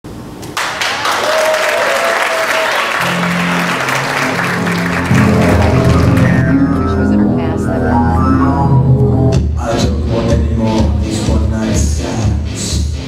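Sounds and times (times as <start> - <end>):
crowd applauding and cheering: 0.6 - 8.9
music with bass line: 3.1 - 13.0.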